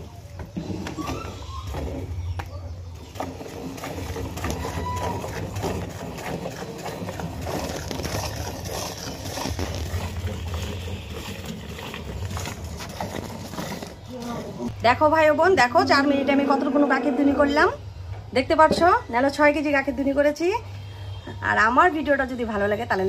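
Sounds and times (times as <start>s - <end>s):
milk squirting into metal pail: 3.0s - 14.7s.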